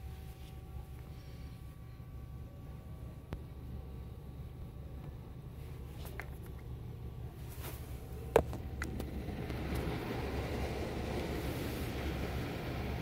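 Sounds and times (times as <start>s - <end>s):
water spraying on windshield: 8.9s - 13.0s.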